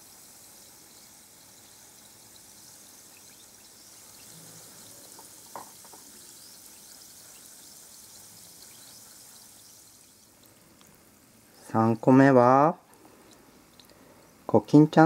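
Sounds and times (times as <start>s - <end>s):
bath ball fizzing: 0.0s - 11.6s.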